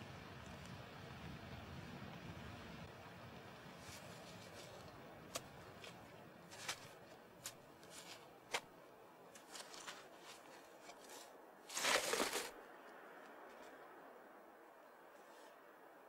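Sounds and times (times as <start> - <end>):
crumbling earth ticks: 3.8 - 8.7, 9.3 - 12.6
hands scraping soil: 3.8 - 8.7, 9.3 - 12.6.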